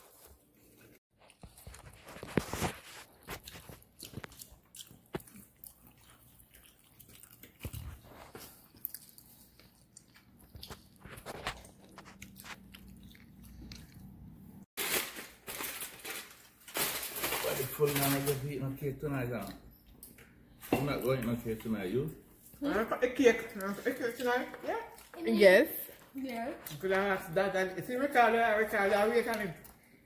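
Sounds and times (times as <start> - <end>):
chewing and crunching food: 0.0 - 14.7, 19.1 - 27.3, 28.4 - 30.0
aluminium foil crinkling: 1.3 - 4.4, 14.8 - 18.8.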